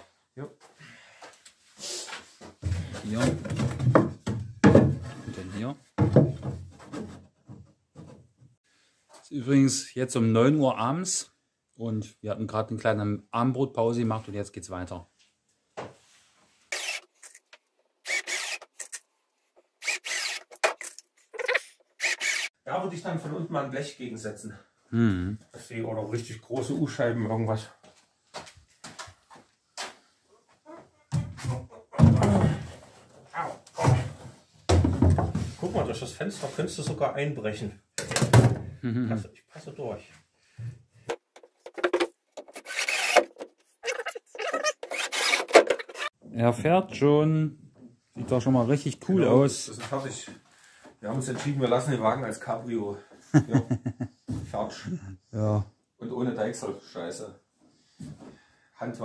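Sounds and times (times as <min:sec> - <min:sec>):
cordless drill driving screws: 0:16.7 - 0:17.4, 0:18.0 - 0:19.0, 0:19.8 - 0:22.5, 0:42.5 - 0:46.1.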